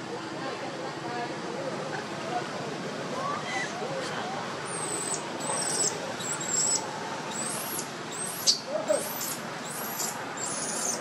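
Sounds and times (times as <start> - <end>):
baby monkey shrill squeals: 4.7 - 11.0.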